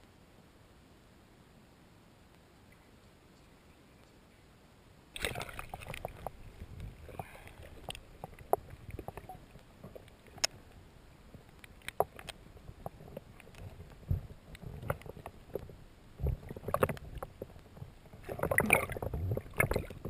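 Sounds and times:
underwater sloshing and bubbling: 0:05.0 - 0:20.0
splash into water: 0:05.2 - 0:06.2, 0:18.2 - 0:19.9
sharp clicks and knocks: 0:11.4 - 0:20.0.

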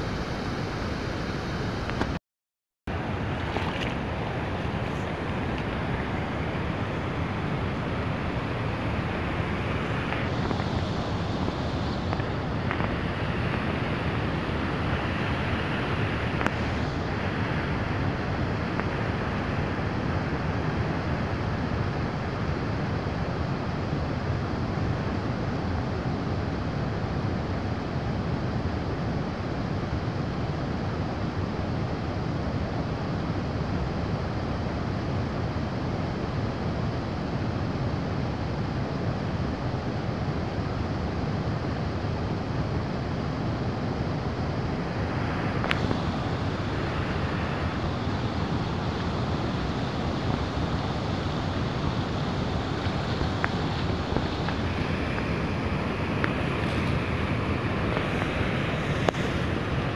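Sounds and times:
floodwater rushing: 0:02.9 - 0:21.6, 0:44.7 - 0:59.9
wind buffeting microphone: 0:38.7 - 0:59.9.

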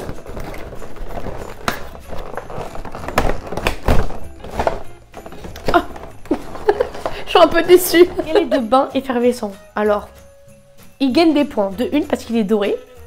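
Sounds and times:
cardboard tearing: 0:00.0 - 0:07.2
cardboard thuds and knocks: 0:00.0 - 0:07.2
background music: 0:00.0 - 0:13.0.

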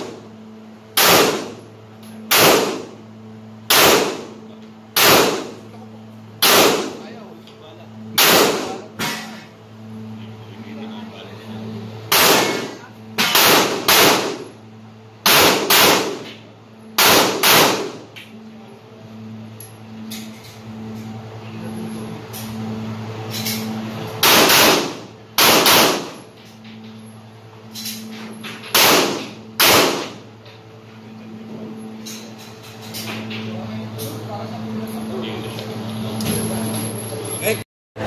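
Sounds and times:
steady low hum: 0:00.0 - 0:38.0
pistol shots echoing: 0:01.0 - 0:01.6, 0:02.3 - 0:02.9, 0:03.7 - 0:04.3, 0:05.0 - 0:05.6, 0:06.4 - 0:07.0, 0:08.2 - 0:08.8, 0:12.1 - 0:14.5, 0:15.2 - 0:16.3, 0:17.0 - 0:18.0, 0:24.2 - 0:26.2, 0:28.7 - 0:30.2.

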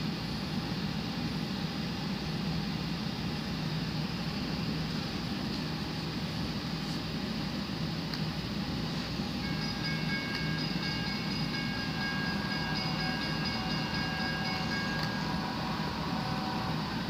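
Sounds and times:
train rumbling hum: 0:00.0 - 0:17.0
train horn chord: 0:10.6 - 0:17.0.

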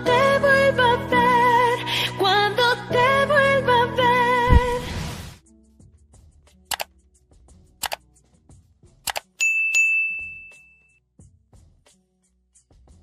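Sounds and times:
mouse clicks: 0:09.1 - 0:09.3
notification bell dinging: 0:09.4 - 0:11.0.

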